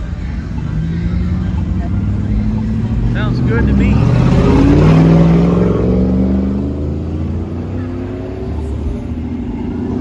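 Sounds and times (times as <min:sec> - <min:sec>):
engine climbing in pitch: 0:00.0 - 0:10.0
vehicles driving past: 0:00.0 - 0:10.0.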